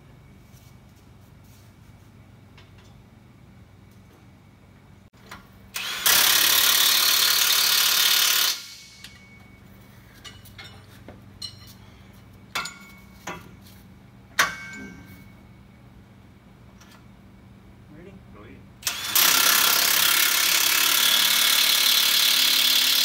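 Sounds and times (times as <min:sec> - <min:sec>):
impact wrench hammering: 0:05.8 - 0:09.4, 0:14.4 - 0:15.0.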